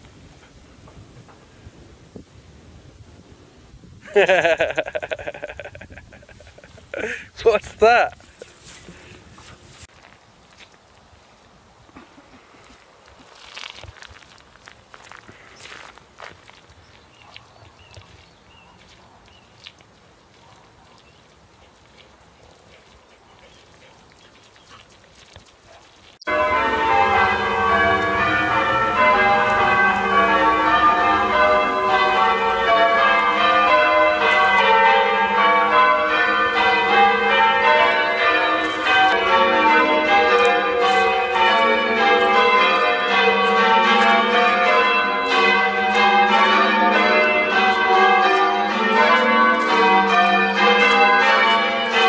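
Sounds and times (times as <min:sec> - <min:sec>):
faint outdoor ambience: 0:00.0 - 0:52.0
church bells ringing: 0:26.2 - 0:52.0.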